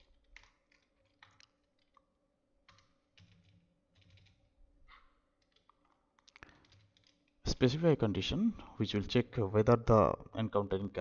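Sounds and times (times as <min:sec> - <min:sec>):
faint keyboard keystrokes: 0:00.0 - 0:07.4.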